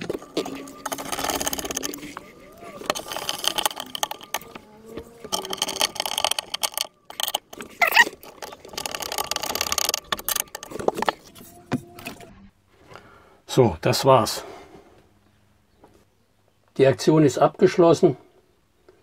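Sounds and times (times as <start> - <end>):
metal hinge rattling and scraping: 0.0 - 12.2
brief squeak: 7.7 - 8.2.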